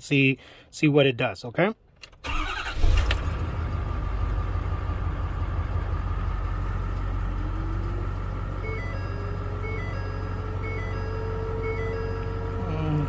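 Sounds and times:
diesel engine idling: 2.3s - 13.0s
faint repeating beep: 8.6s - 12.7s.

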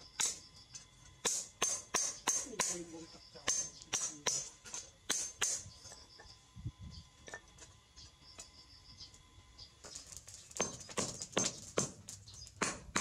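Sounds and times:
hammer striking hot steel: 0.1s - 0.5s, 1.2s - 2.8s, 3.4s - 5.7s, 12.6s - 13.0s.

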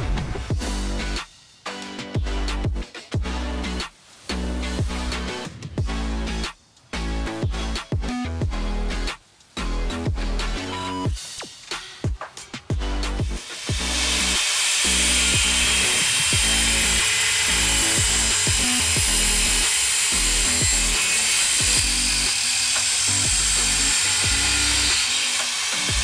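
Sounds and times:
electronic music with beat: 0.0s - 14.0s
angle grinder cutting metal: 13.3s - 26.0s.

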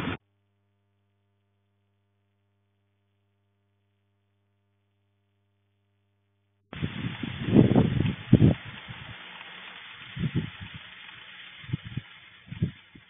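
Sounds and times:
rain and wind on microphone: 6.7s - 13.0s.

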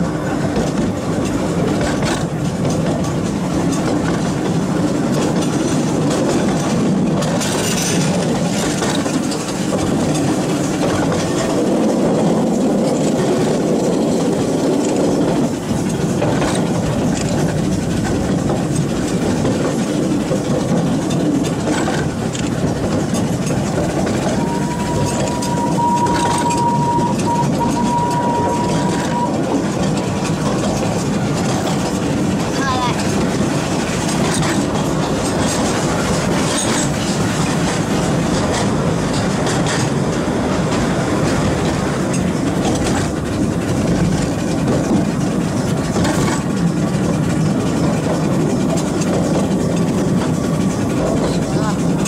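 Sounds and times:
train wheels rumbling: 0.0s - 52.0s
wheels clicking over rail joints: 0.0s - 52.0s
high train whistle: 24.2s - 29.5s.

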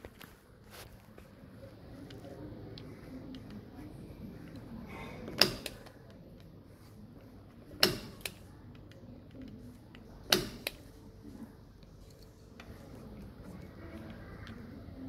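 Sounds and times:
punch-down tool snapping: 7.8s - 8.4s, 10.3s - 10.8s.

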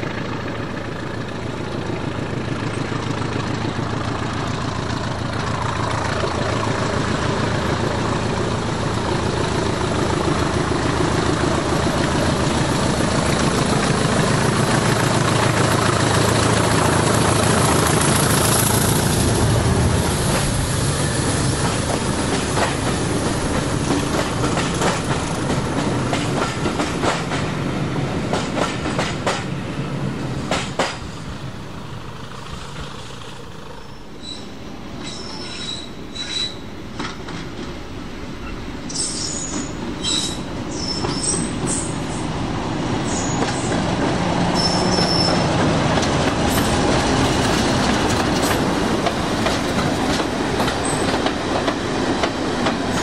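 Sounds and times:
wheels clicking over rail joints: 0.0s - 27.6s, 28.3s - 29.5s, 30.4s - 31.1s, 42.9s - 53.0s
train running past: 0.0s - 53.0s
high wheel squeals: 33.7s - 36.7s, 38.4s - 42.3s, 43.0s - 43.8s, 44.5s - 45.6s.

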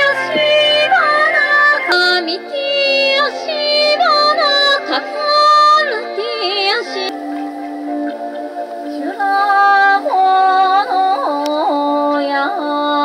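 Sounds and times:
synthesizer drone: 0.0s - 12.1s
high wordless yodel-like melody: 0.0s - 13.0s.

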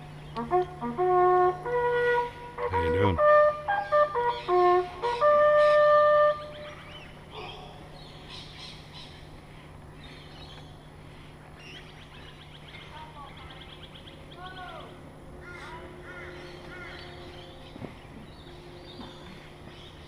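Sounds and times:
faint birdsong: 0.0s - 20.0s
bugle call: 0.3s - 6.8s, 14.4s - 17.8s.

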